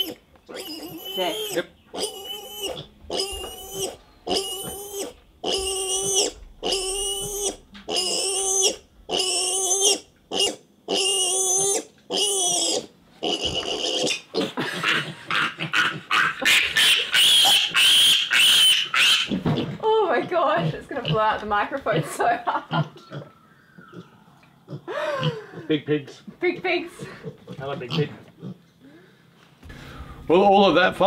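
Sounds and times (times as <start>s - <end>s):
piglet squealing: 0.0s - 19.8s, 22.7s - 26.2s.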